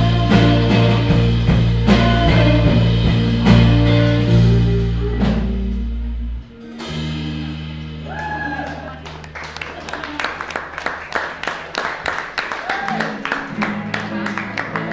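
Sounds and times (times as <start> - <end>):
drum kit hits: 0.0 - 6.0.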